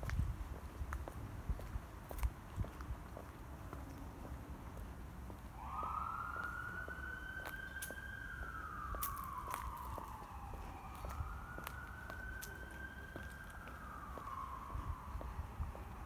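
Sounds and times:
emergency siren wailing: 0:05.5 - 0:16.0.

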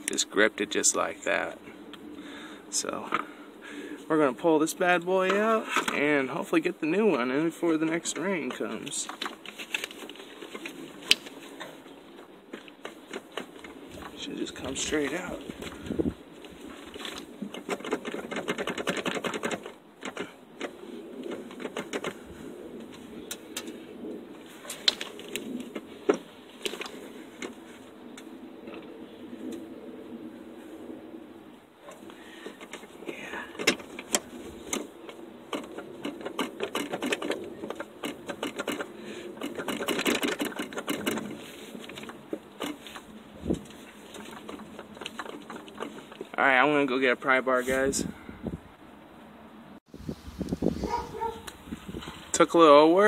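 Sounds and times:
metallic clicking and rattling: 0:16.4 - 0:22.2, 0:31.9 - 0:46.4
sharp metallic clicks: 0:33.5 - 0:43.1.

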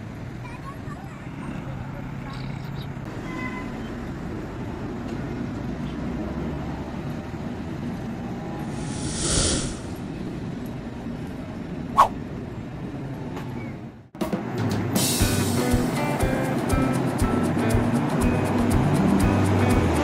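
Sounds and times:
traffic rumble: 0:00.0 - 0:14.6
vehicle passing: 0:07.9 - 0:10.6
music: 0:14.2 - 0:20.0.

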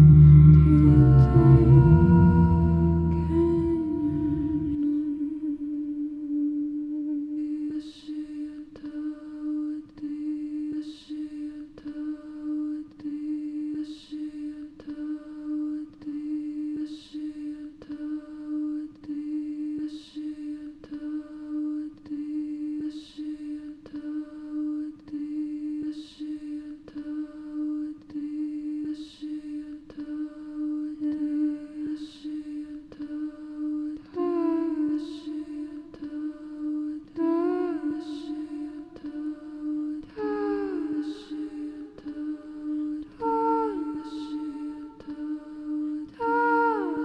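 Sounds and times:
hummed drone: 0:00.0 - 0:08.6, 0:33.3 - 0:47.0
woman singing lullaby: 0:00.0 - 0:47.0.

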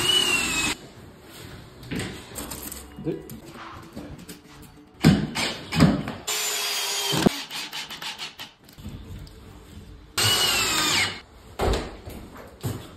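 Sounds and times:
cordless drill driving screws: 0:00.0 - 0:00.8, 0:10.2 - 0:11.2.

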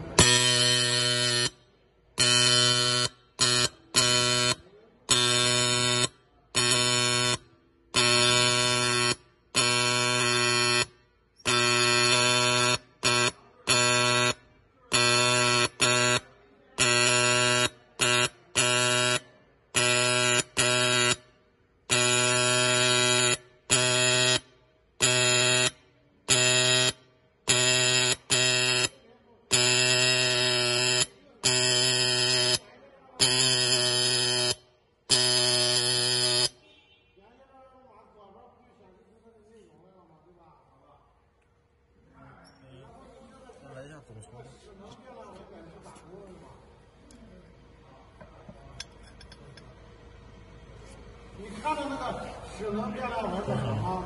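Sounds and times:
marking machine hammering metal: 0:19.8 - 0:21.3.

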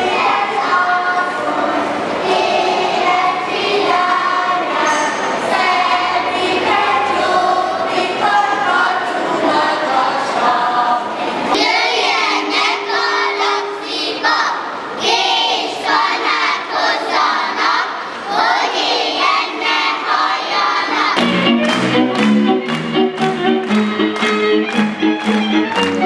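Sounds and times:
children singing folk song: 0:00.0 - 0:21.5.

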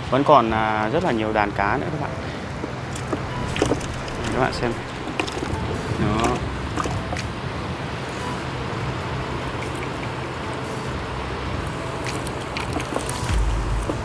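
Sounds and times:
surf and wind: 0:00.0 - 0:14.0
fish flapping and splashing in bucket: 0:02.7 - 0:07.4, 0:11.8 - 0:14.0
low thump: 0:13.3 - 0:14.0.

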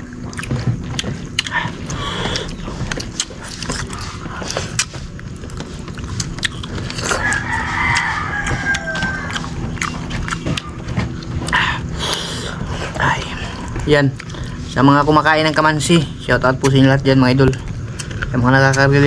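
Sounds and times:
rooster crowing: 0:06.8 - 0:11.0.

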